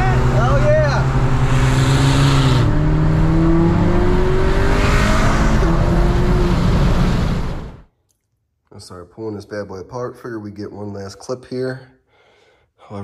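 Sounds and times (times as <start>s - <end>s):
car engine accelerating: 0.0s - 7.8s
road and wind noise: 0.0s - 7.8s.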